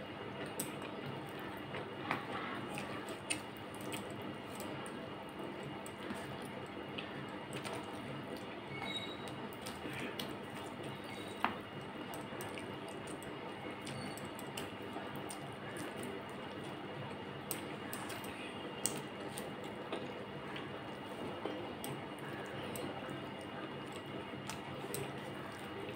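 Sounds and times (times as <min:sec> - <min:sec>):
wet squishing of fingers mixing food: 0:00.0 - 0:25.9
chewing: 0:00.4 - 0:25.9.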